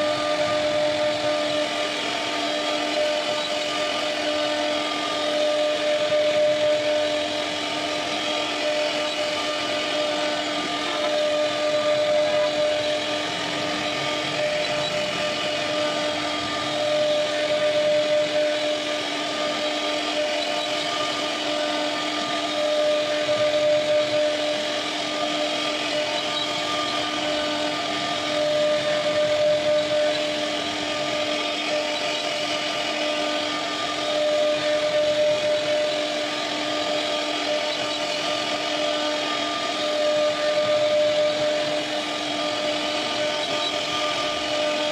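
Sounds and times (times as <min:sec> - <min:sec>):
router spindle whining carving wood: 0:00.0 - 0:44.9.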